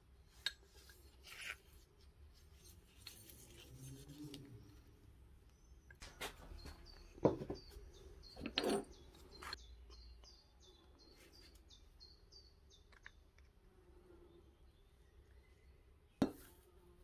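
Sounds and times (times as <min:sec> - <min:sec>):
small bird chirping: 0:04.5 - 0:13.4.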